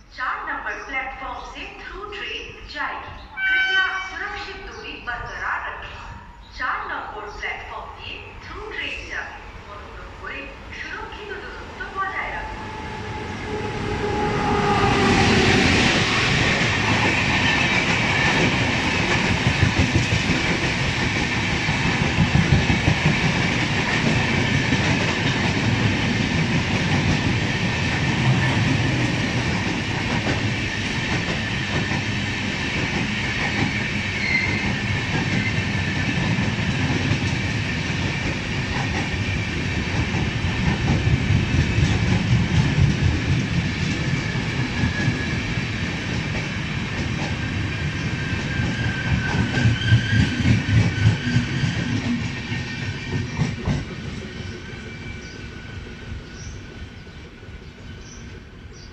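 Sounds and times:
electric locomotive passing: 0.8s - 58.9s.

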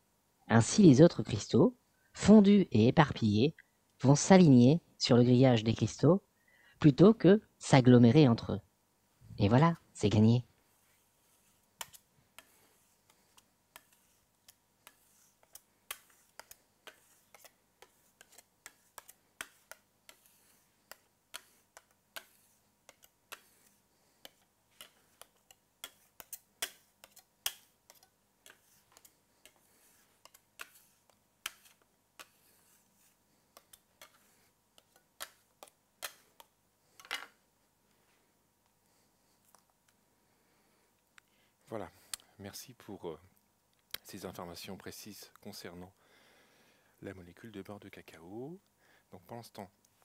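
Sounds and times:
longer scrape: 10.7s - 34.5s.

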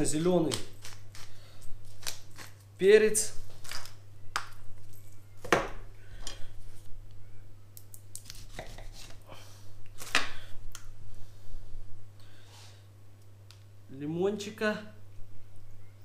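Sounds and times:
knife cutting lemon: 8.2s - 9.2s.

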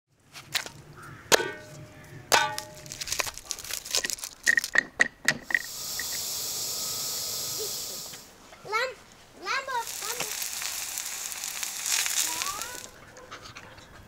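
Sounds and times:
ringing metal clangs: 1.3s - 3.0s
steam hissing from pressure valve: 5.5s - 8.4s, 9.8s - 12.9s.

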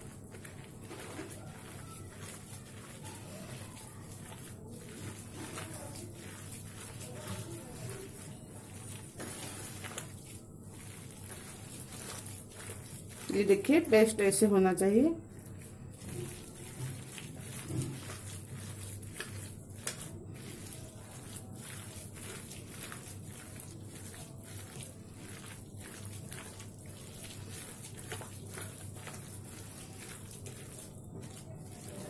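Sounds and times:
wet batter squelching: 0.0s - 32.0s.

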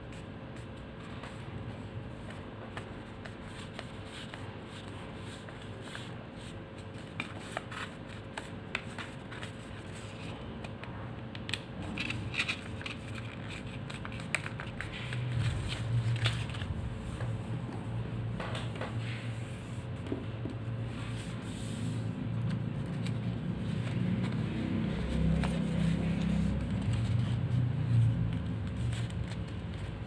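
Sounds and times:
paper folding and creasing: 0.1s - 17.5s, 18.6s - 30.0s
low hum: 14.7s - 29.8s.

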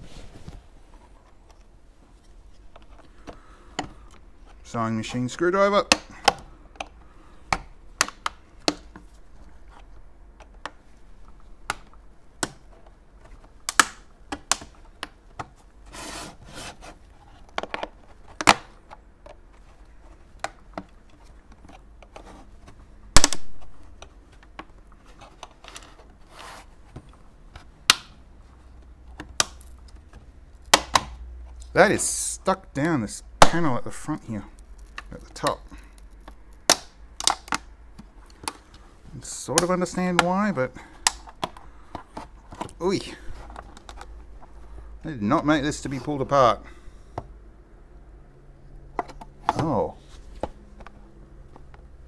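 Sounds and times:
sharp plastic snap: 5.8s - 6.9s, 7.5s - 9.0s, 13.6s - 15.2s, 23.1s - 23.7s, 27.8s - 28.2s, 30.6s - 31.2s, 36.0s - 38.7s, 40.9s - 41.6s
plastic casing clicks and scrapes: 39.6s - 44.7s.

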